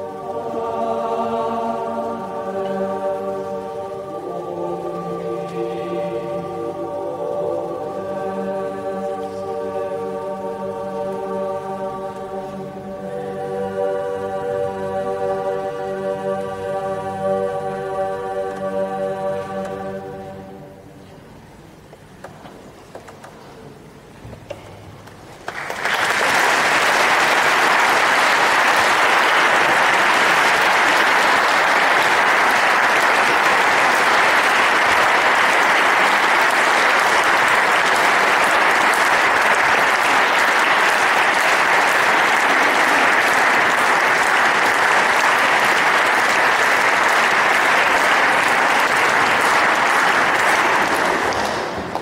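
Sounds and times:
audience applauding: 0:25.4 - 0:52.0.

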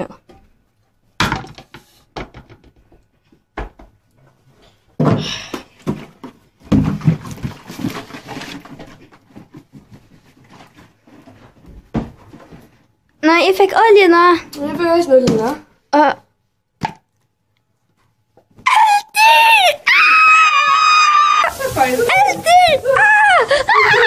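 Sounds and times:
plastic bag rustling: 0:21.4 - 0:24.0.

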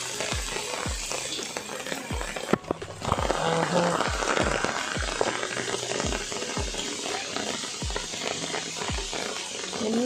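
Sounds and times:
background music with steady beat: 0:00.0 - 0:10.0
heavy rain on water and leaves: 0:03.2 - 0:06.8.

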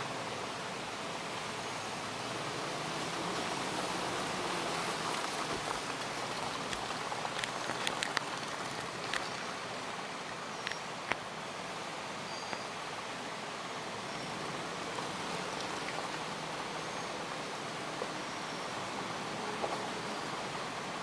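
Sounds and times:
steady rain hissing: 0:00.0 - 0:21.0
raindrops ticking on a surface: 0:04.4 - 0:11.3.

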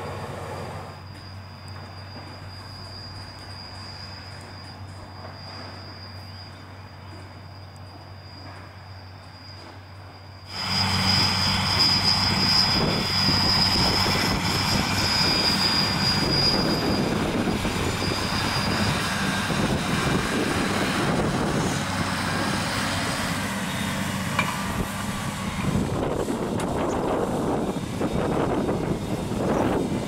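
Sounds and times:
manure spreader noise: 0:00.0 - 0:01.2, 0:10.5 - 0:30.0
high whine: 0:00.0 - 0:30.0
tractor engine under load: 0:10.5 - 0:30.0.

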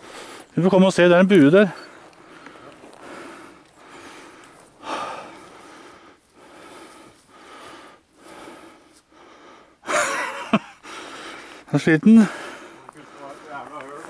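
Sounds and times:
person breathing heavily: 0:00.0 - 0:00.6, 0:01.9 - 0:14.0.

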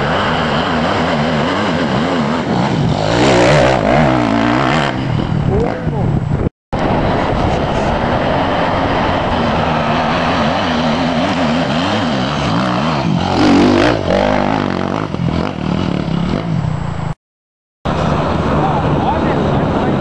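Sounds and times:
off-road motorcycle engine revving: 0:00.0 - 0:06.0, 0:09.5 - 0:17.1.

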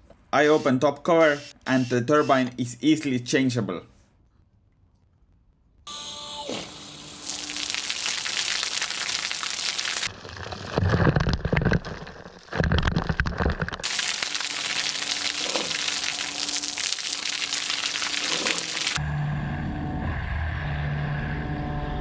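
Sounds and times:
water spray hissing on gravel: 0:06.6 - 0:10.1, 0:13.8 - 0:19.0
water splattering on microphone: 0:07.2 - 0:10.1, 0:13.8 - 0:19.0.

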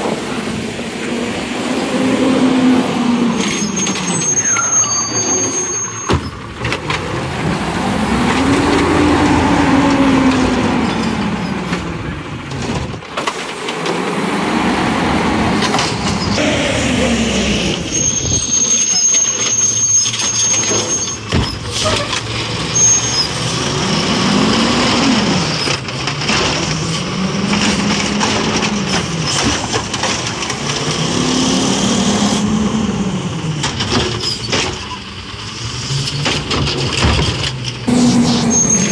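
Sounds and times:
garbage truck engine revving: 0:00.0 - 0:19.6, 0:20.7 - 0:38.9.

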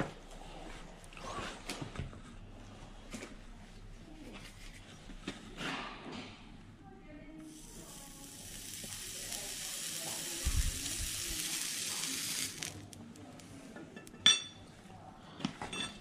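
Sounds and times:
hot horseshoe sizzling on hoof: 0:07.5 - 0:13.5.

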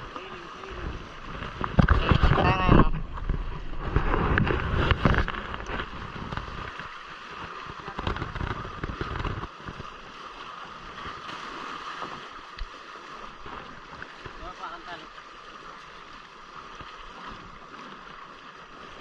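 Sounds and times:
wind buffeting microphone: 0:00.0 - 0:09.9
water rushing past hulls: 0:00.0 - 0:19.0.

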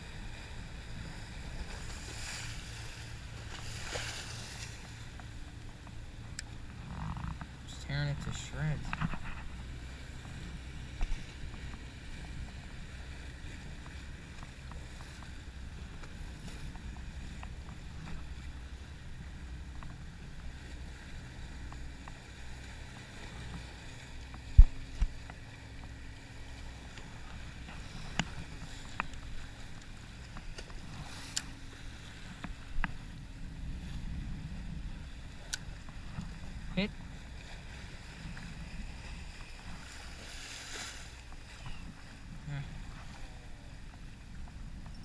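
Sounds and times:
wind on microphone: 0:23.1 - 0:25.2, 0:27.0 - 0:45.0.

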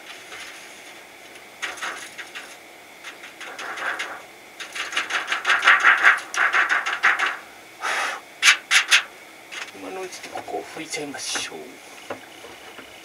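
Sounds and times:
scratchy plastic rubbing: 0:00.0 - 0:01.0, 0:01.6 - 0:07.5
rapid plastic clicking: 0:01.3 - 0:07.4.

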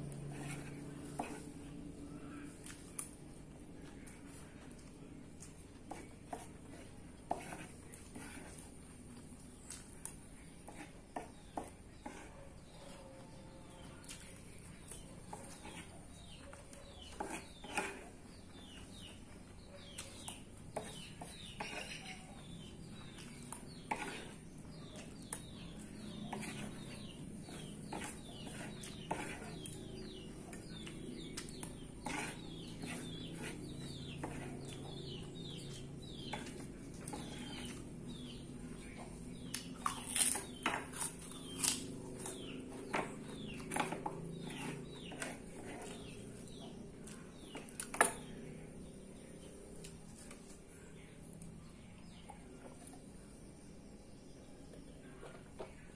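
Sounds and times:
spoon and fork scraping plate: 0:00.0 - 0:01.6, 0:05.9 - 0:08.7, 0:17.0 - 0:19.1, 0:20.7 - 0:22.3, 0:22.9 - 0:38.3, 0:42.2 - 0:46.6
chewing: 0:02.4 - 0:48.0.

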